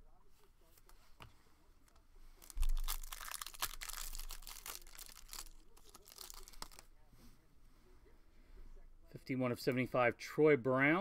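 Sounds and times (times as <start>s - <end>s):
foil wrapper tearing and crinkling: 2.4s - 6.8s.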